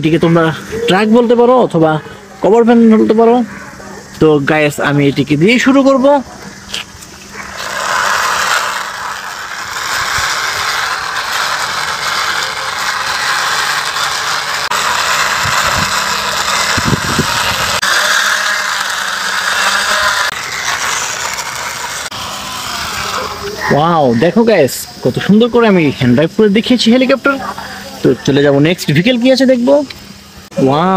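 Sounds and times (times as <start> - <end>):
plastic wheels scraping along wall: 7.2 - 23.8.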